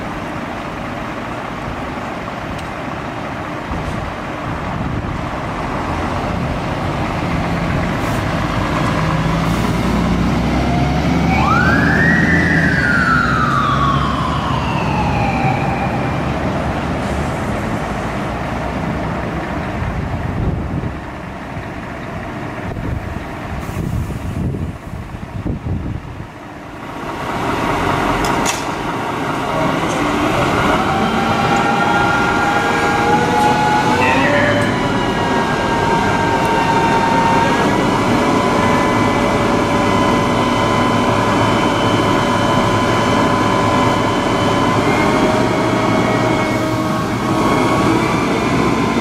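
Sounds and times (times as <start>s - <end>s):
diesel engine under load: 0.0s - 49.0s
siren wail: 10.4s - 17.0s, 29.1s - 49.0s.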